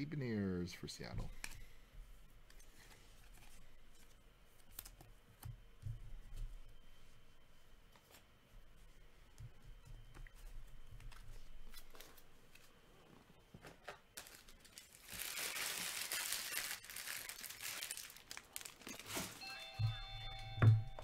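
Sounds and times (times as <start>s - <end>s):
plastic wrapper crinkling and tearing: 14.1s - 19.5s.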